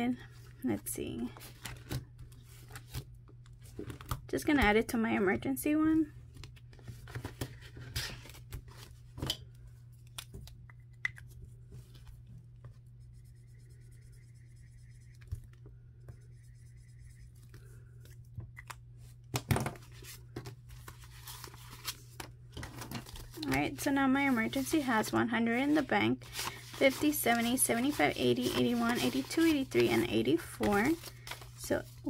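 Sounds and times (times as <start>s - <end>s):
steady low hum: 0.0s - 32.0s
paper and plastic rustling: 19.7s - 32.0s.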